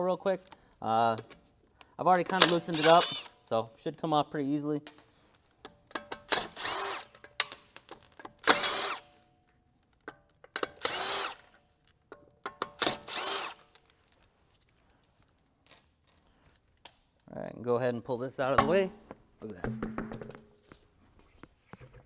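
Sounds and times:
impact wrench spinning bolts: 2.4 - 3.4, 6.0 - 9.1, 10.5 - 11.6, 12.5 - 13.9.

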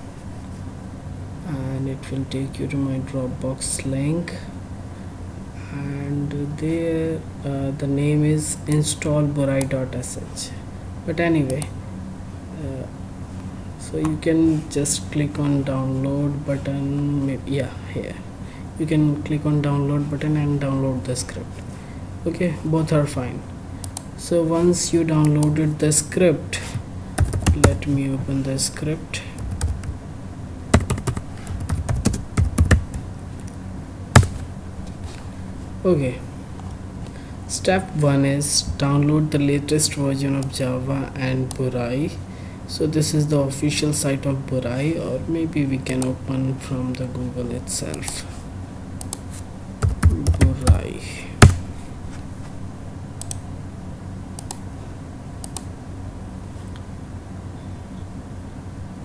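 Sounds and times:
low electrical hum: 0.0 - 59.0
computer mouse clicks: 23.8 - 24.1, 49.0 - 49.2, 53.2 - 53.4, 54.4 - 54.6, 55.4 - 55.7
typing on computer keyboard: 27.2 - 27.8, 30.8 - 33.0, 49.8 - 50.8.

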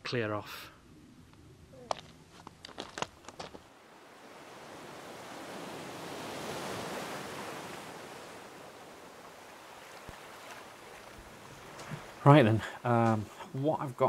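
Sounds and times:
wave washing on pebbles: 2.8 - 12.4.

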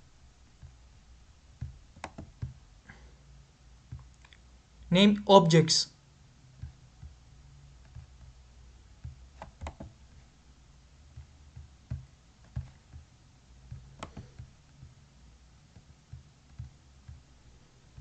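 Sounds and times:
soft low taps: 0.6 - 1.0, 1.6 - 2.6, 6.5 - 7.2, 9.0 - 10.3, 11.0 - 15.0, 15.7 - 17.3
mouse and keyboard clicks: 2.0 - 2.6, 9.4 - 10.0, 13.7 - 14.5.

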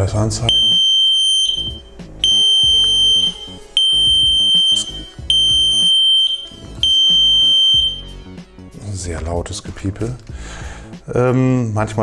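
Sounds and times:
loud high warning beeps: 0.5 - 8.2.

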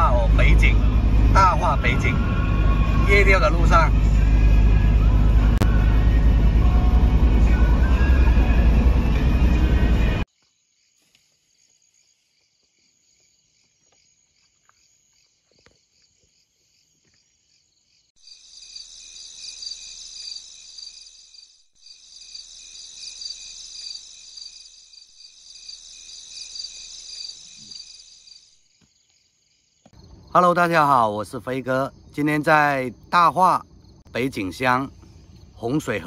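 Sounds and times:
crickets and insects trilling: 10.3 - 36.0.

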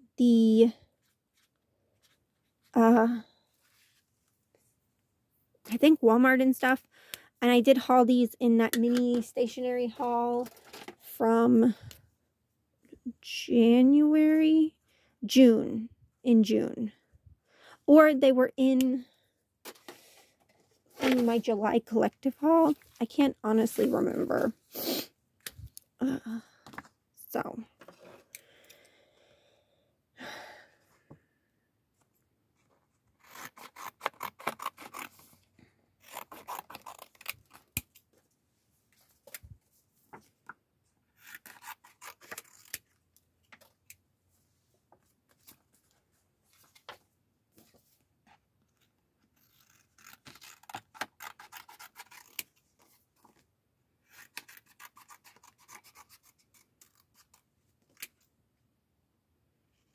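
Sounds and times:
scissors snipping paper: 33.2 - 35.2, 36.0 - 37.9, 41.2 - 42.9, 49.4 - 52.6, 54.1 - 58.2.

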